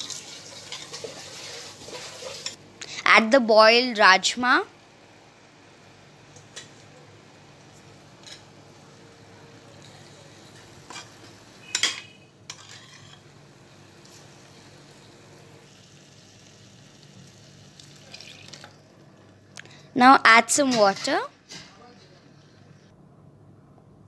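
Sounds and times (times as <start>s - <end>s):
faint sizzle: 0.0s - 23.0s
metal ladle scraping pot: 11.7s - 13.2s.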